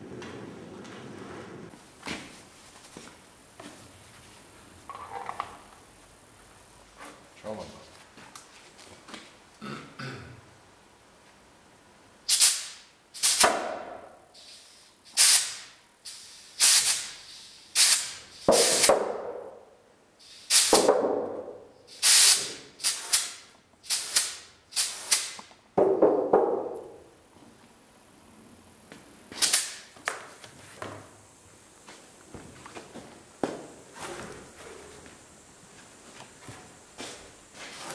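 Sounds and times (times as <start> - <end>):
compressed air puffs hissing: 12.3 - 13.5, 14.3 - 19.0, 20.2 - 20.9, 21.8 - 25.5.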